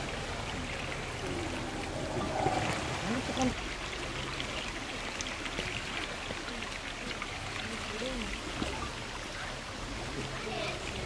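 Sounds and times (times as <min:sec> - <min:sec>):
steady rushing noise: 0:01.0 - 0:03.7.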